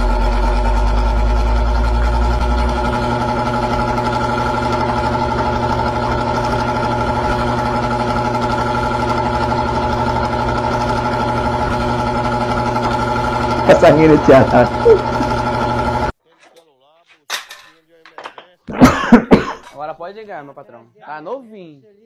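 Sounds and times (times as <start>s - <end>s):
small engine idling: 0.0s - 16.1s.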